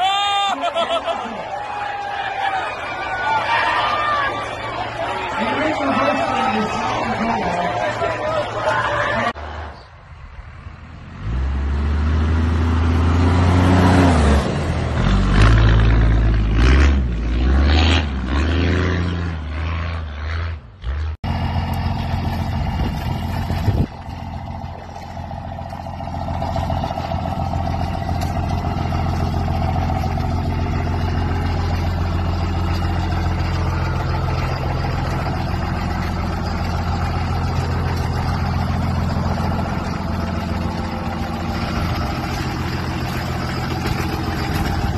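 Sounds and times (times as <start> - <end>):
diesel pickup idling: 0.0 - 11.5, 21.2 - 44.9
diesel engine revving: 0.0 - 44.9
engine blip: 21.2 - 44.9.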